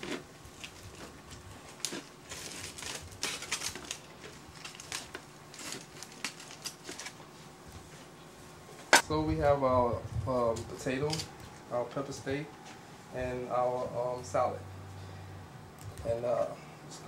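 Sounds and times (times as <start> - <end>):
aluminium foil crinkling: 0.0 - 7.3, 10.7 - 11.5.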